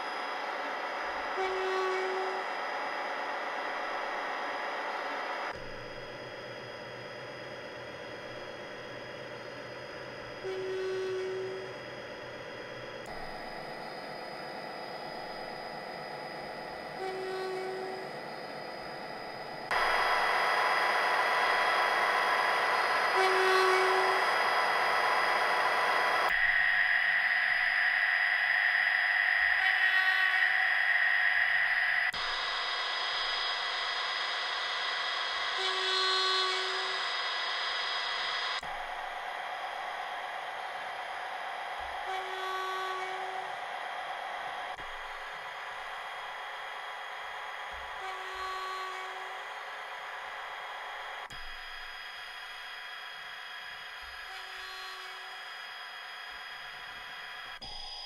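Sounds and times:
model locomotive engine sound: 0.0 - 58.0.

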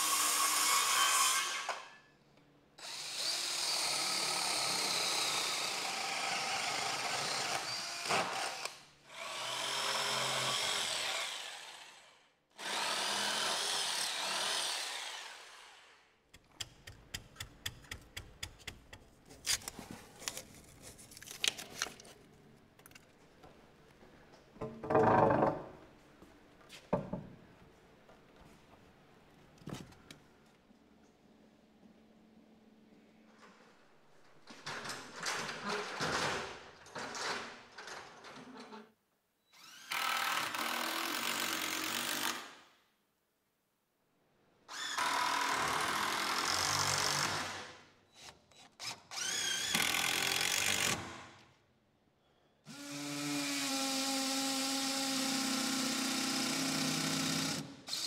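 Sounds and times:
circular saw cutting wood: 2.9 - 16.0.

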